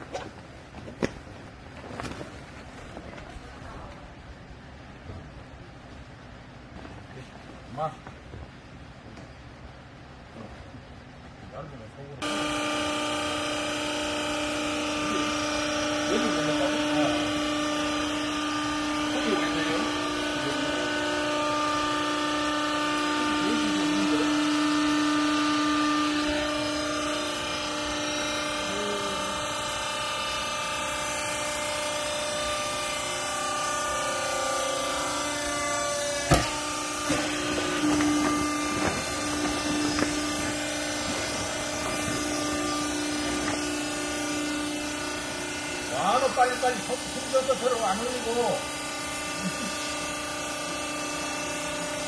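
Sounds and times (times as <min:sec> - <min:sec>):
hydraulic motor and pump humming: 0:00.0 - 0:52.0
high whine: 0:09.1 - 0:52.0
sharp knocks: 0:36.2 - 0:43.7.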